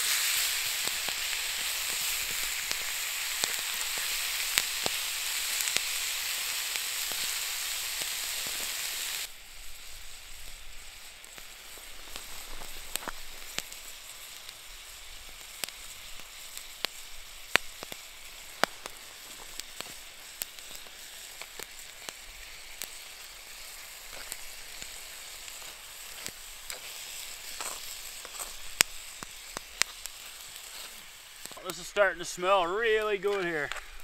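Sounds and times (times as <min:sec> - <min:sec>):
food sizzling in a pan: 0:00.0 - 0:34.0
oil popping and spattering: 0:15.3 - 0:31.9.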